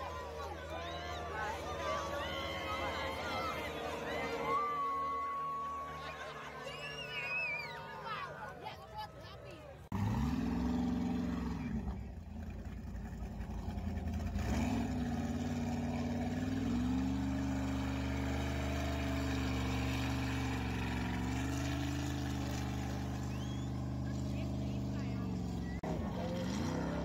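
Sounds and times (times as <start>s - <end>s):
speedboat engine running: 11.0s - 27.0s.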